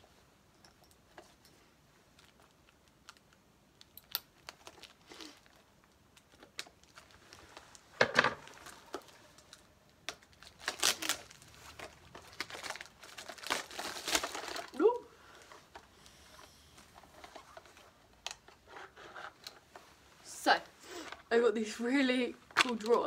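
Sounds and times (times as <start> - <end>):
plastic packaging crinkling and tearing: 2.2 - 15.9, 22.4 - 23.0.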